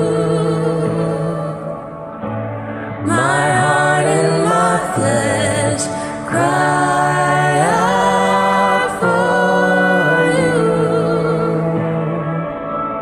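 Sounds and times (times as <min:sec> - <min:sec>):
backing track accompaniment: 0:00.0 - 0:13.0
person singing worship song: 0:00.0 - 0:13.0.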